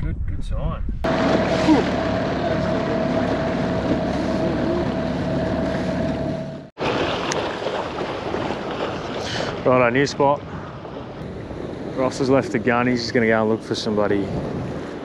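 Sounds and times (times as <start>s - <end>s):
wind on microphone: 0.0s - 1.9s, 10.4s - 15.0s
water rushing past hull: 1.0s - 15.0s
boat motor whine: 1.1s - 6.8s.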